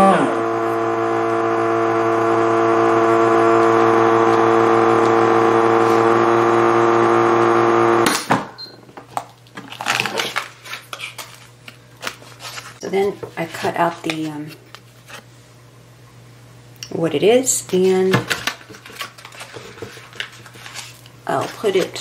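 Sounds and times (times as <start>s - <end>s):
vacuum sealer humming: 0.0s - 8.3s.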